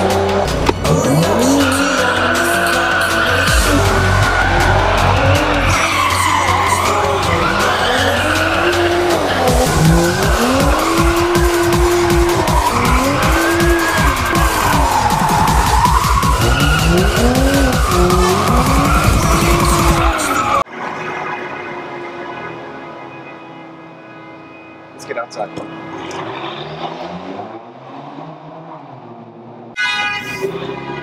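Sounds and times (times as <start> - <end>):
car engine revving: 0.0 - 29.8
tires squealing: 0.0 - 31.0.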